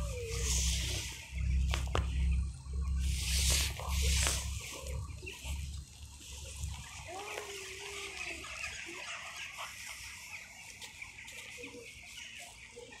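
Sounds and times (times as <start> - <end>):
low rumble on microphone: 0.0 - 7.7.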